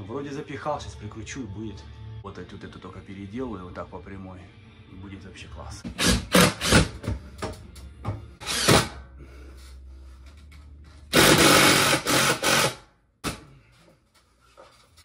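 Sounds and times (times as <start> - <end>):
cordless drill driving screws: 8.4 - 8.8, 11.1 - 12.8.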